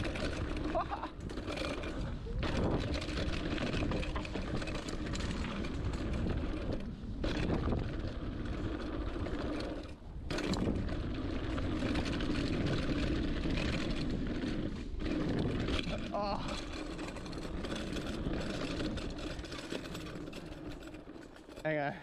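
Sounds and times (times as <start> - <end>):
wind on microphone: 0.0 - 9.4
bike clattering over bumps: 0.0 - 22.0
tyres on dirt: 0.0 - 22.0.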